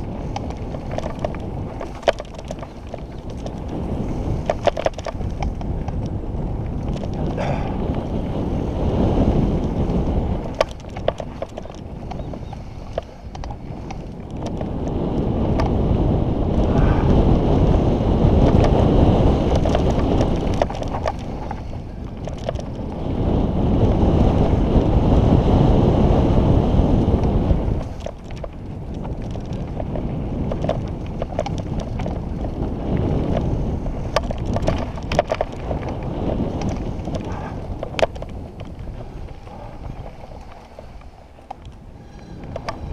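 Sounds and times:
tyres crunching over gravel: 0:00.0 - 0:08.4, 0:27.4 - 0:42.9
bike clicks and rattles: 0:00.0 - 0:42.9
wind buffeting microphone: 0:00.0 - 0:42.9.

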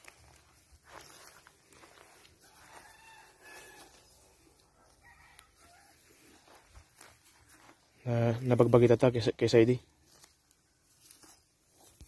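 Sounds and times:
faint rooster crowing: 0:01.8 - 0:06.8.

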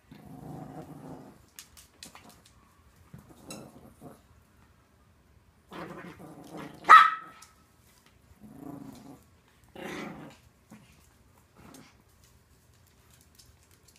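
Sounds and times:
dogs growling in play: 0:00.0 - 0:02.4, 0:03.1 - 0:04.4, 0:05.7 - 0:06.9, 0:08.3 - 0:12.2
dog yap: 0:06.9 - 0:07.4.

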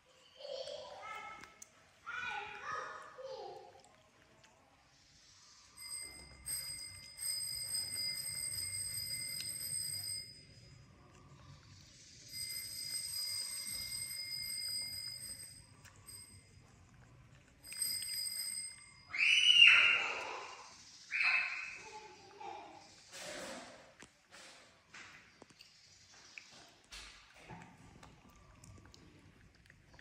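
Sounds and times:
high steady ringing tone: 0:05.4 - 0:17.0, 0:17.6 - 0:21.8.

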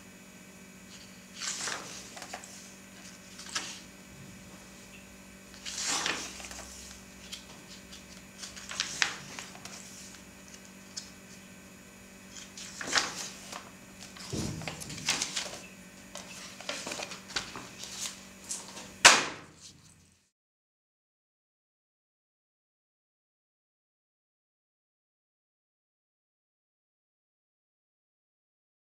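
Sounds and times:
faint steady hum: 0:00.0 - 0:20.3
magazine pages turning: 0:00.9 - 0:04.9, 0:05.5 - 0:11.4, 0:12.3 - 0:20.1
magazine slapping onto table: 0:19.0 - 0:19.6.

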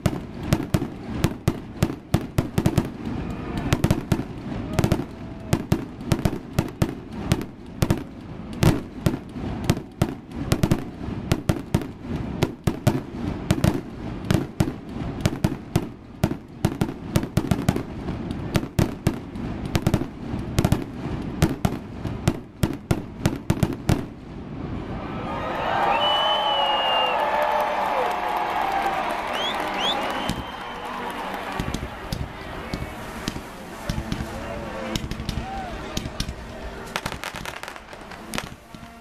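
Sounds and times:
crowd noise: 0:00.0 - 0:12.4, 0:24.3 - 0:39.0
firework bangs and crackles: 0:00.0 - 0:39.0.

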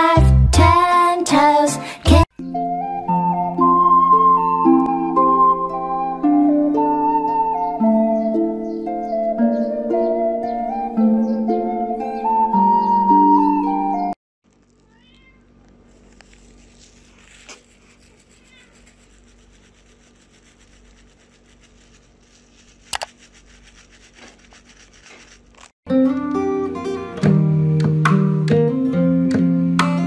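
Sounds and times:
background music: 0:00.0 - 0:14.2.

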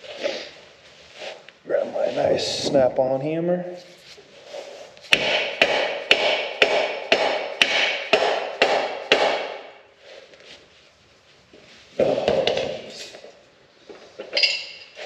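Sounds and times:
hammer blows ringing: 0:05.1 - 0:09.8.

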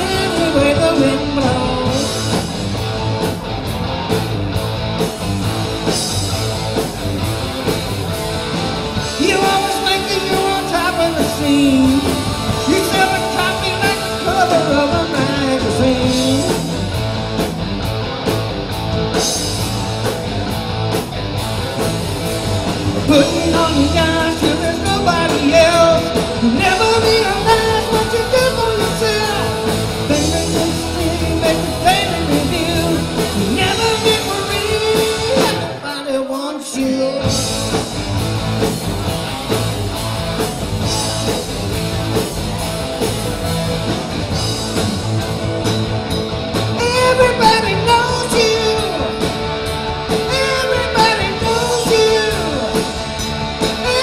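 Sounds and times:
lead singer singing: 0:00.0 - 0:02.5, 0:09.0 - 0:16.9, 0:23.0 - 0:37.9, 0:46.7 - 0:54.0
rock and roll band playing: 0:00.0 - 0:54.0.

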